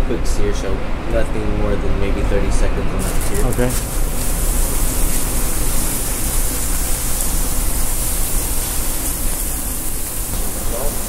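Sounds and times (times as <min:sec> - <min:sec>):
fat sizzling on a griddle: 0:03.0 - 0:11.0.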